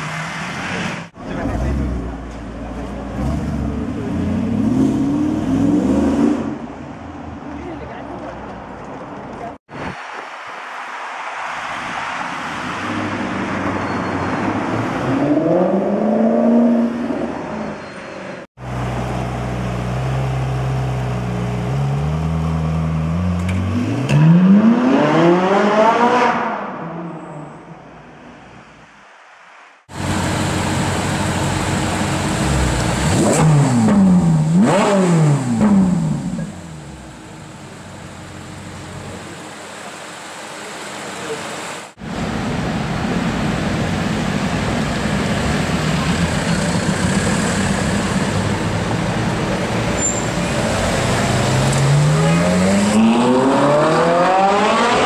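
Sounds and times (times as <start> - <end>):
car accelerating: 18.6 - 27.2, 45.1 - 55.0
sports car engine revving: 31.8 - 37.2, 50.6 - 55.0.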